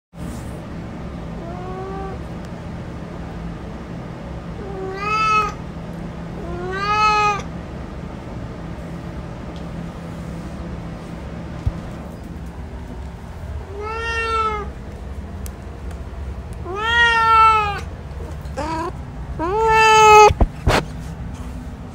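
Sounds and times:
steady low hum: 0.2s - 21.9s
cat meowing: 4.6s - 5.6s, 6.4s - 7.5s, 13.7s - 14.8s, 16.6s - 17.9s, 18.5s - 20.4s.

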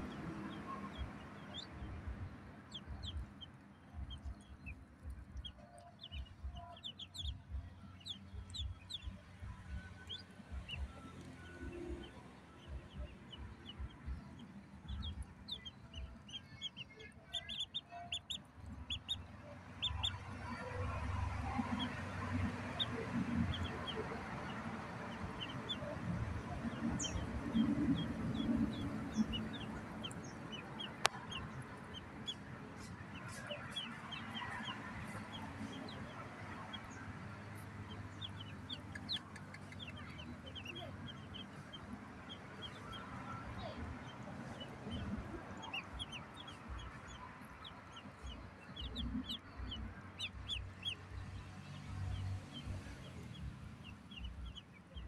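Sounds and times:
ducklings peeping: 0.0s - 55.0s
low rumbling noise: 17.4s - 47.1s.

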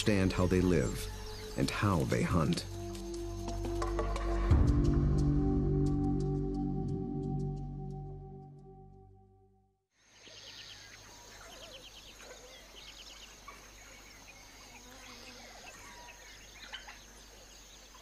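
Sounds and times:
birds chirping and trilling: 0.0s - 4.7s, 10.0s - 18.0s.

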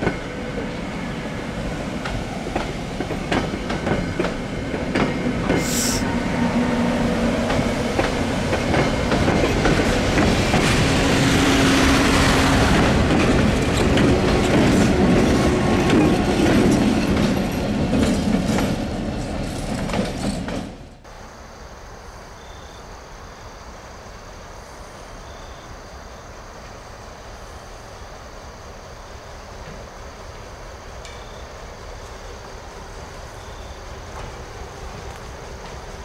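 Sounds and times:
train passing close: 0.0s - 36.0s
wheels clacking over rail joints: 1.6s - 6.1s, 7.1s - 21.1s.

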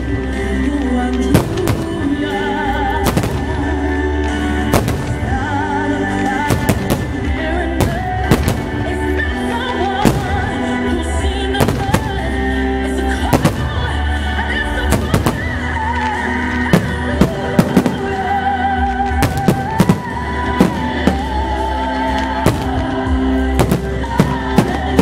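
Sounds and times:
fireworks exploding: 0.0s - 25.0s
loud music with held notes: 0.0s - 25.0s.

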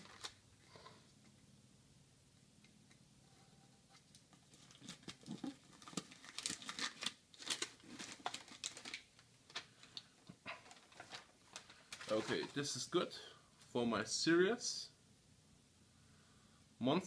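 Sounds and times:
packing material rustling: 0.0s - 0.4s, 4.0s - 12.8s.

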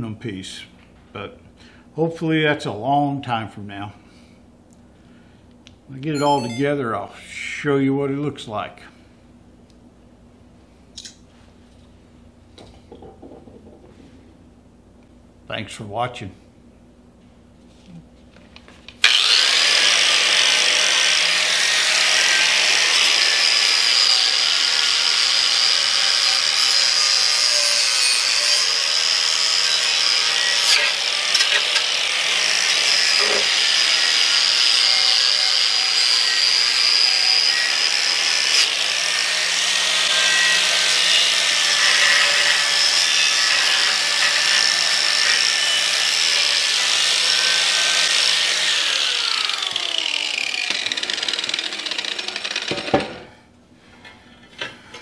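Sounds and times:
angle grinder grinding metal: 19.0s - 53.2s
grinder disc knocking metal: 50.5s - 53.3s.

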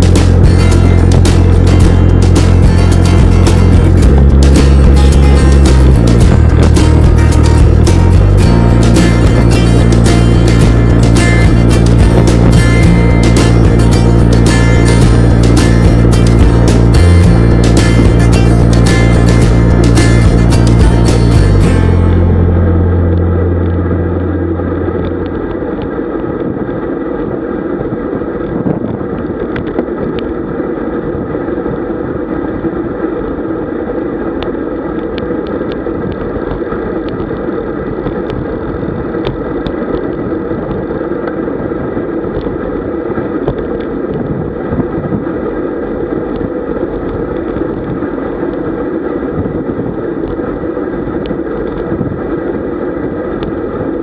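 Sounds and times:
wind rush: 0.0s - 54.0s.

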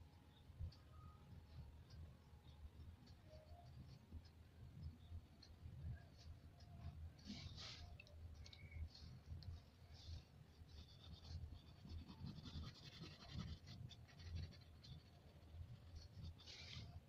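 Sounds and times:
pastel scratching on paper: 10.0s - 17.0s.

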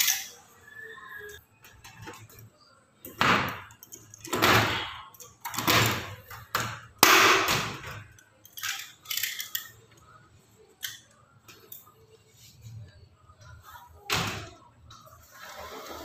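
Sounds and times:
metal pliers clanking and scraping: 0.0s - 0.4s, 8.0s - 10.0s.

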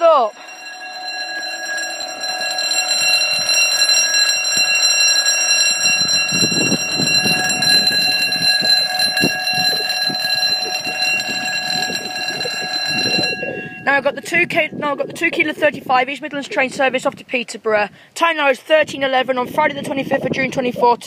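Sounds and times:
level crossing alarm tone: 0.0s - 15.2s.

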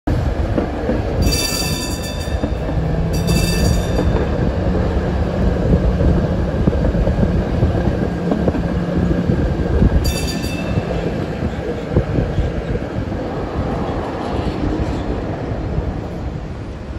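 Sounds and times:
streetcar rumbling on rails: 0.0s - 16.9s
high-pitched squeals: 1.2s - 4.4s.

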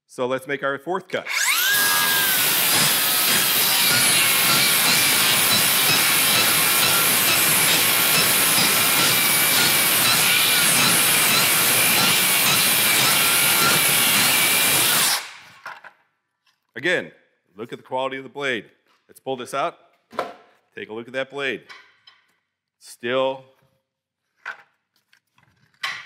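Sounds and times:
circular saw cutting wood: 1.2s - 15.6s.

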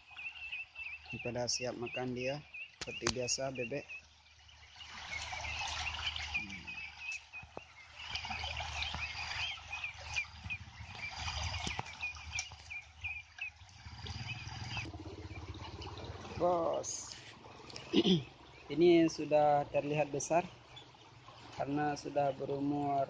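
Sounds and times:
ducklings peeping: 0.0s - 21.1s.

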